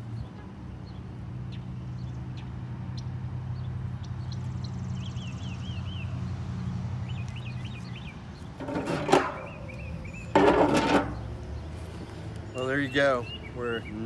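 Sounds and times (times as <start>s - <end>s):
small bird chirping: 9.4s - 10.4s.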